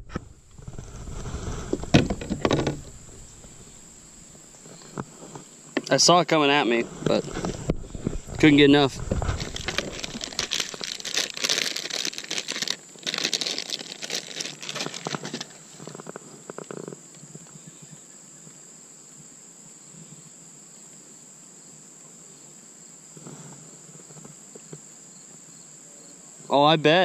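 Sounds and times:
plastic bag crinkling: 7.1s - 15.6s.

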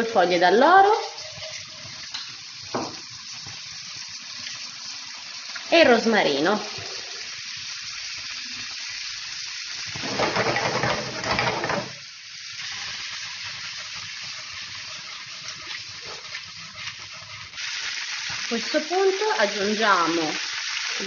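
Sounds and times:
vegetables sizzling in oil: 0.0s - 21.0s.

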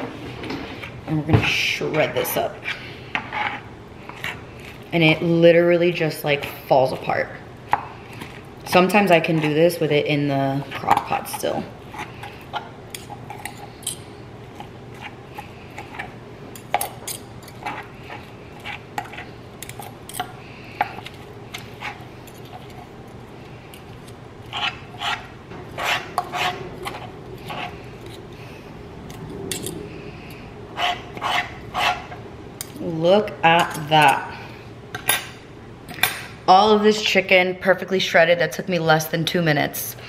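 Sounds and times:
metal forks clinking and scraping: 12.9s - 14.1s, 29.2s - 32.0s.

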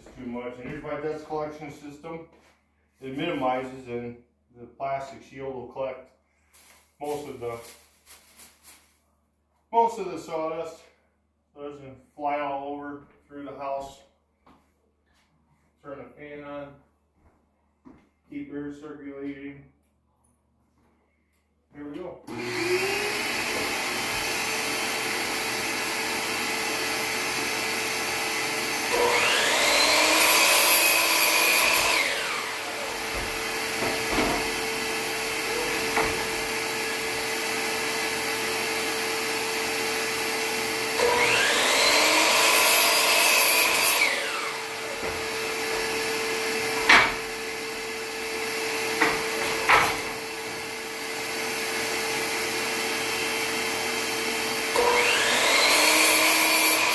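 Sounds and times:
shop vacuum running: 21.8s - 56.9s
miter saw cutting wood: 22.3s - 56.9s.

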